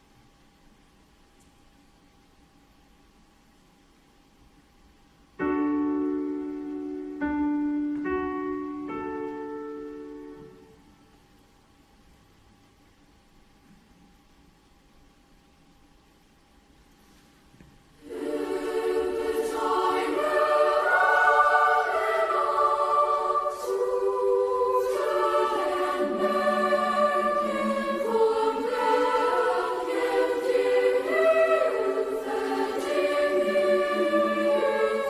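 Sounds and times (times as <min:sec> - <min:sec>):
girls' choir singing: 0:18.0 - 0:35.0.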